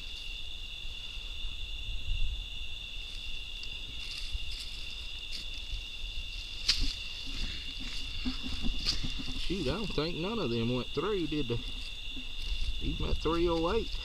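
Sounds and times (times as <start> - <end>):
crickets trilling: 0.0 - 14.0
rustling and handling noise: 6.4 - 10.6.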